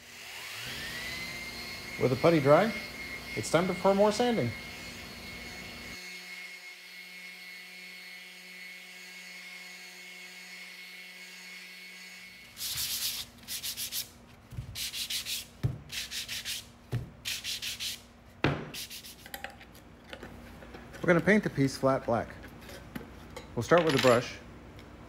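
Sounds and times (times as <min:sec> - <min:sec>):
orbital sander running: 0:00.1 - 0:14.1
hand sanding scraping strokes: 0:12.0 - 0:19.4.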